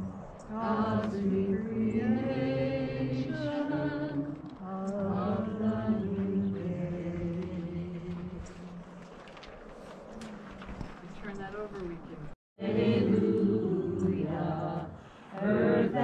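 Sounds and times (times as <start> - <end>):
group of voices singing: 0.0 - 9.4, 12.6 - 16.0.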